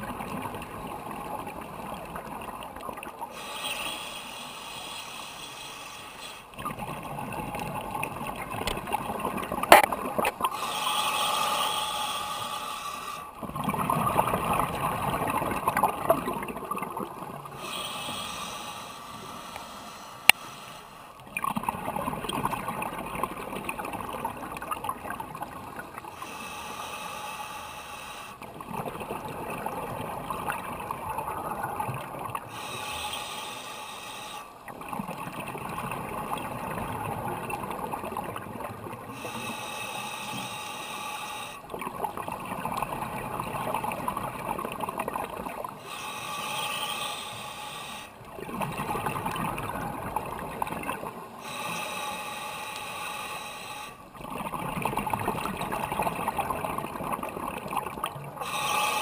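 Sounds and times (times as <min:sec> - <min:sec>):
hissing inhale: 0:03.3 - 0:06.6, 0:10.4 - 0:13.4, 0:17.5 - 0:21.2, 0:26.1 - 0:28.4, 0:32.4 - 0:34.6, 0:39.1 - 0:41.7, 0:45.8 - 0:48.3, 0:51.2 - 0:54.1, 0:58.4 - 0:59.0
underwater regulator breathing: 0:03.3 - 0:06.6, 0:09.7 - 0:13.4, 0:17.5 - 0:21.2, 0:26.0 - 0:28.4, 0:32.4 - 0:34.6, 0:39.0 - 0:41.8, 0:45.7 - 0:48.3, 0:50.6 - 0:54.1, 0:58.3 - 0:59.0
gurgling exhaled bubbles: 0:06.6 - 0:10.6, 0:13.4 - 0:17.7, 0:21.2 - 0:26.1, 0:28.4 - 0:32.5, 0:34.6 - 0:39.3, 0:41.6 - 0:45.9, 0:48.2 - 0:51.4, 0:54.1 - 0:58.6.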